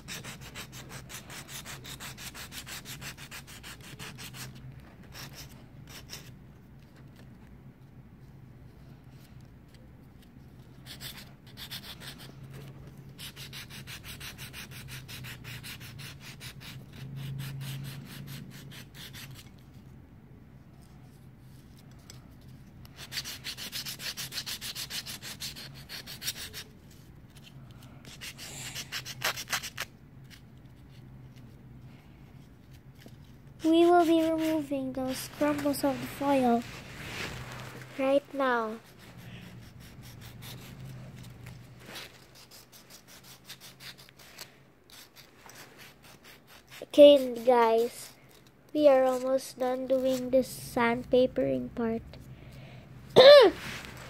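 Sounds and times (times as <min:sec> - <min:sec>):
nail file rasping on foil: 0:00.0 - 0:06.3, 0:13.2 - 0:19.5, 0:22.9 - 0:26.7, 0:28.1 - 0:30.4, 0:33.6 - 0:36.6, 0:38.5 - 0:50.4.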